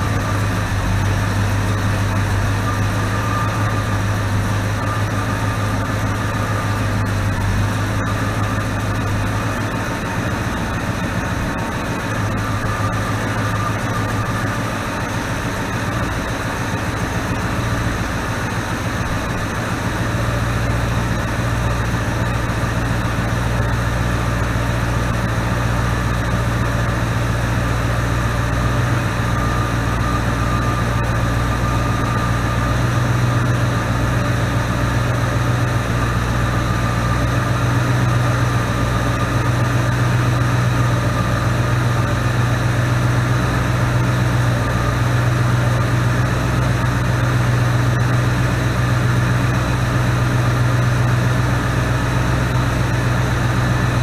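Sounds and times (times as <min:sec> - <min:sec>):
car engine idling: 0:00.0 - 0:54.0.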